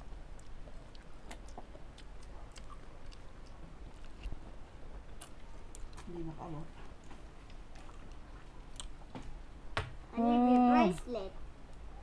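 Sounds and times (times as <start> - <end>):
mouth clicks and smacks chewing: 0.3 - 6.1, 7.0 - 9.0.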